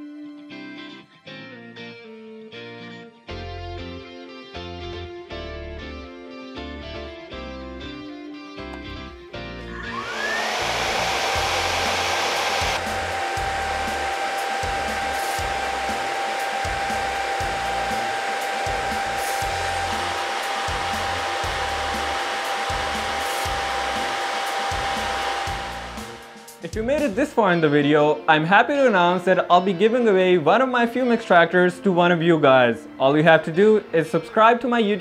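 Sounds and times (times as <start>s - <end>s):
fan whine: 9.6s - 27.1s.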